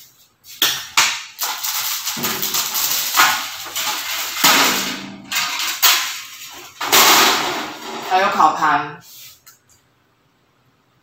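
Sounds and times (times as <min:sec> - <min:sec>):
plastic packaging crinkling: 0:01.3 - 0:04.5.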